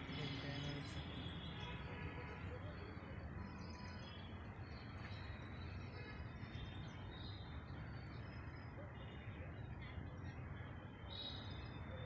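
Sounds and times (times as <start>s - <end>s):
bird chirps: 11.1s - 12.0s.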